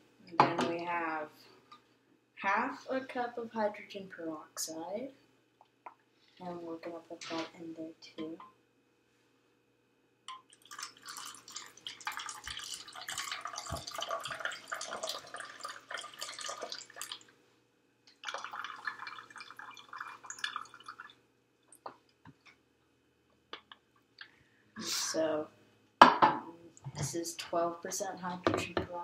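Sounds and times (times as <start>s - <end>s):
liquid pouring into a bottle: 10.5s - 17.3s, 18.1s - 21.2s.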